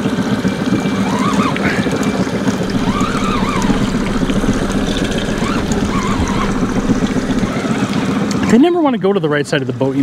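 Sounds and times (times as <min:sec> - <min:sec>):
outboard motor running: 0:00.9 - 0:08.2.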